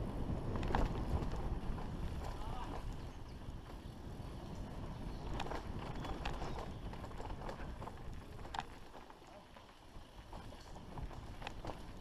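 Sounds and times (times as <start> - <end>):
wind on microphone: 0.0 - 9.0
bike tyres rumbling on dirt: 0.0 - 12.0
bike clicks and rattles: 0.1 - 12.0.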